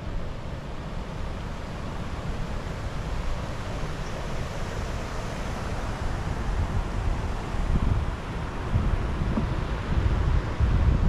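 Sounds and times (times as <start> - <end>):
river water rushing: 0.0 - 10.9
wind buffeting the microphone: 5.8 - 11.0.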